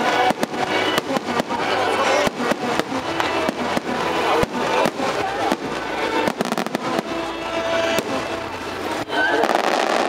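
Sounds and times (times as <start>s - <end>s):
music playing: 0.0s - 10.0s.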